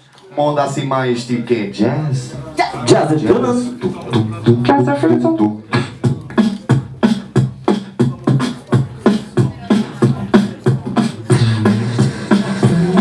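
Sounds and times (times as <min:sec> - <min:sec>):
beatboxing drum hits: 0:03.2 - 0:13.0.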